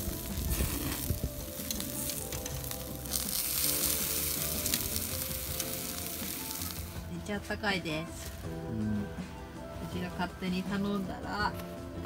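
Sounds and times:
meat sizzling on charcoal grill: 0.0 - 9.1.

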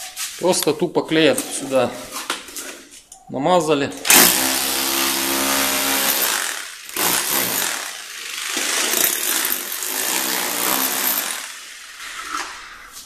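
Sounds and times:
rotary hammer chipping concrete: 4.1 - 12.4.

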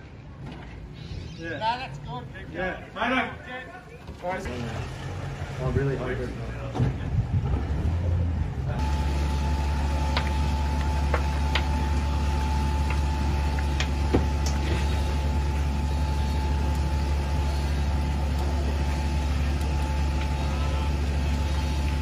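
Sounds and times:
fire truck engine running: 4.2 - 22.0
high whine: 8.7 - 22.0.

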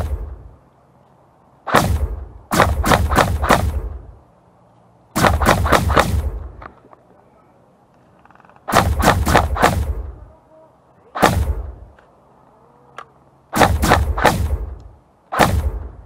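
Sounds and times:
airsoft rifle firing shots: 0.0 - 0.5, 1.6 - 4.1, 5.1 - 6.6, 8.7 - 10.2, 11.2 - 12.0, 13.5 - 16.0.

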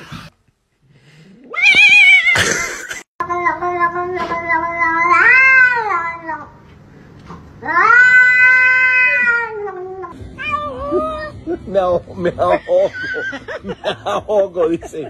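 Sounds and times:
cat meowing: 4.4 - 6.4, 7.6 - 11.2.

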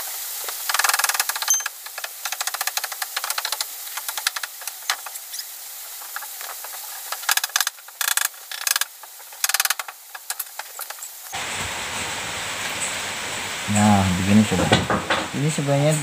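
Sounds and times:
scratchy rattling bursts: 0.0 - 11.4
wire twisting by hand: 0.5 - 11.2.

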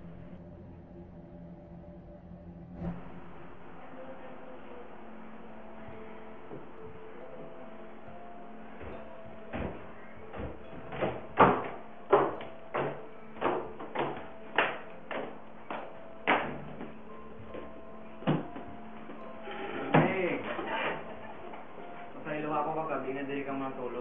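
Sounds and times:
faint steady hum: 0.0 - 24.0
footsteps down a staircase: 8.8 - 19.2.

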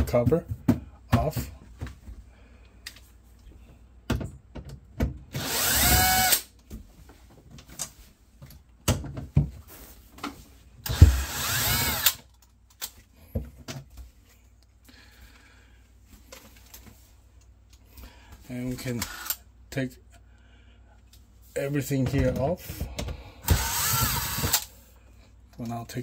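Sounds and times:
power drill-driver motor: 5.4 - 6.5, 10.9 - 12.2, 19.0 - 19.4, 23.4 - 24.7.

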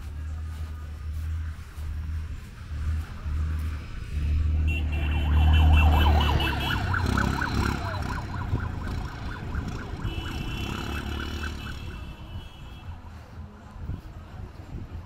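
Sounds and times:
vehicle engine rumble: 0.0 - 15.0
electronic siren warbling: 5.0 - 10.4.

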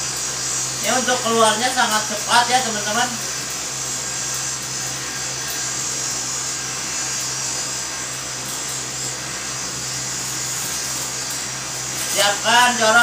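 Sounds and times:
cotton candy machine motor hum: 0.0 - 13.0.

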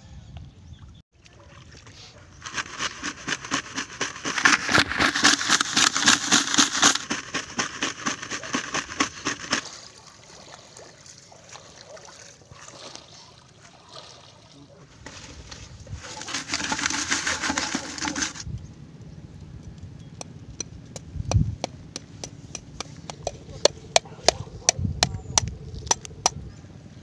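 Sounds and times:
sea urchins rattling in pail: 2.3 - 10.0, 15.0 - 18.5.

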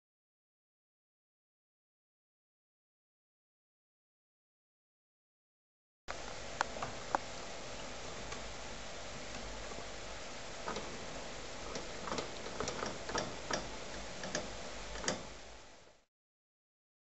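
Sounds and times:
steady hiss: 6.1 - 16.1.

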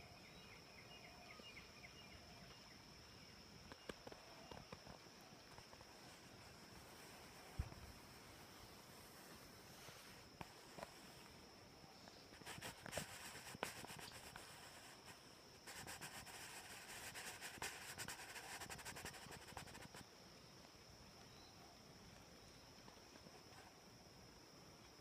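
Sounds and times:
crackling and scratching: 12.4 - 20.0.

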